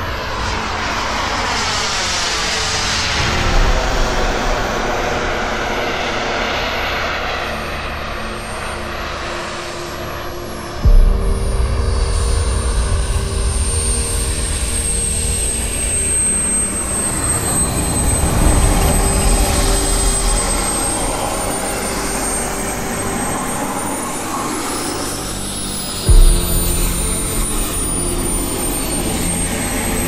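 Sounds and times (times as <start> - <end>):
rushing noise and low rumble: 0.0 - 30.0
model jet turbines whining: 12.4 - 30.0.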